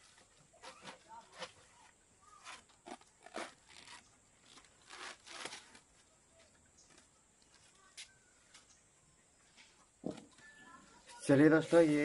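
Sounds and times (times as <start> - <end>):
tape rustling and scraping: 0.0 - 8.8.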